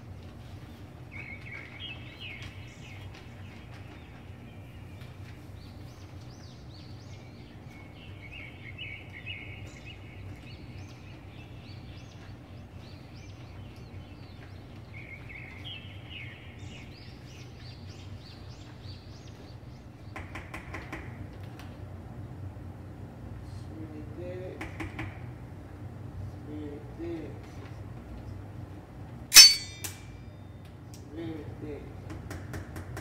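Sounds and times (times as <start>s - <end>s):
steady low hum: 29.1s - 30.5s
utensil squeaking against bowl: 29.4s - 29.9s.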